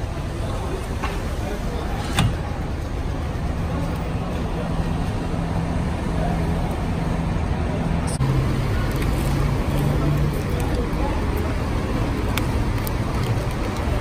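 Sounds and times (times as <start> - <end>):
road traffic hum: 0.0 - 14.0.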